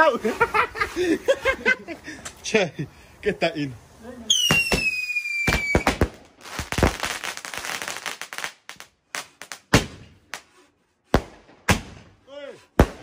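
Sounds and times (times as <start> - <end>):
crackling firework stars: 3.2 - 12.2
firework whistle: 4.3 - 6.0
firework bangs: 4.3 - 12.2, 12.8 - 13.0.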